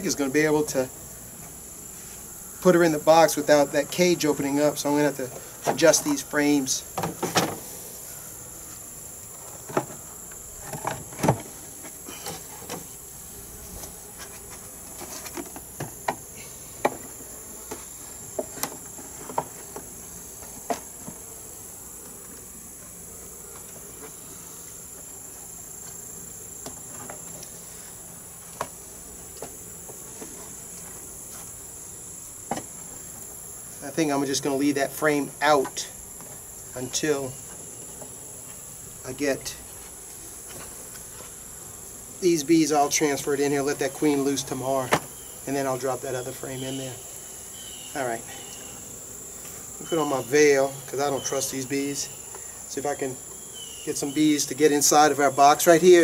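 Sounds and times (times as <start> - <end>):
high-pitched insect drone: 31.1 - 39.6, 42.2 - 56.0.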